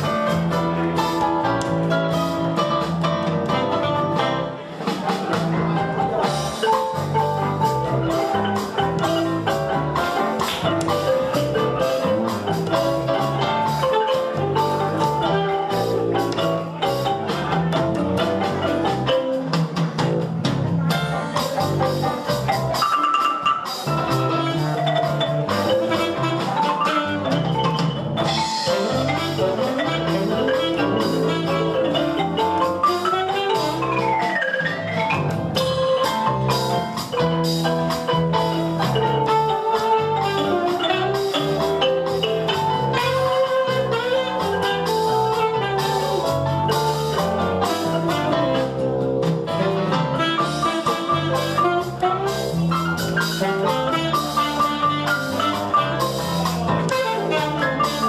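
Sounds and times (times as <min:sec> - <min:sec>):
wooden xylophone fast runs: 0:22.5 - 0:48.6.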